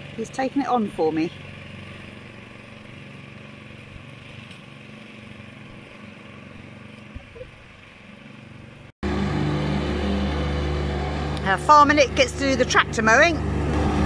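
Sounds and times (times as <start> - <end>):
lawn mower engine cutting grass: 0.0 - 14.0
ride-on mower engine: 0.0 - 14.0.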